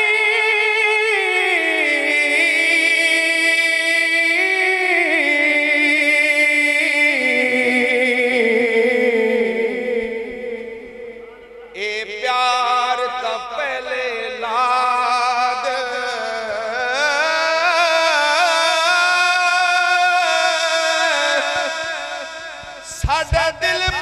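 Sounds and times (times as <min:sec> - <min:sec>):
man singing solo: 0:11.6 - 0:24.0.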